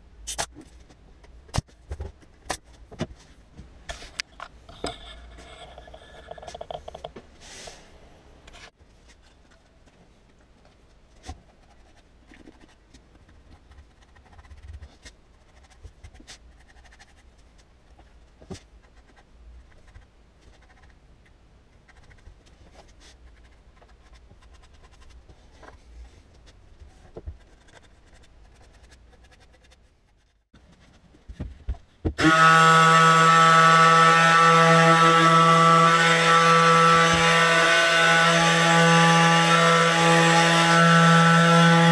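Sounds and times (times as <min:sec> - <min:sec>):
power tool humming: 0:32.2 - 0:41.9.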